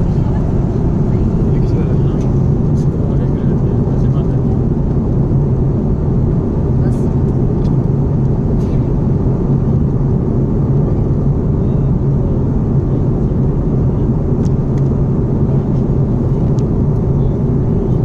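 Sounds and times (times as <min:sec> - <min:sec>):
airliner cabin drone: 0:00.0 - 0:18.0.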